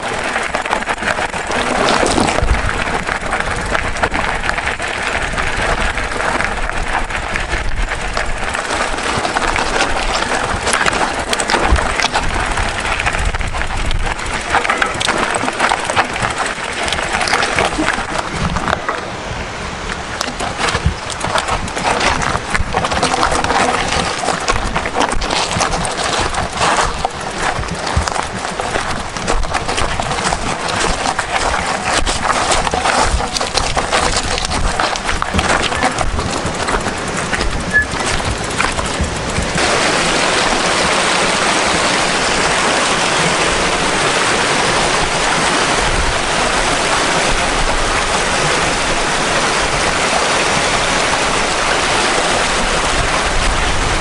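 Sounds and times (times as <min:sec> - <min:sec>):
stones knocking: 0:00.0 - 0:19.0, 0:20.0 - 0:42.2
bike tyres crunching on gravel: 0:00.0 - 0:54.0.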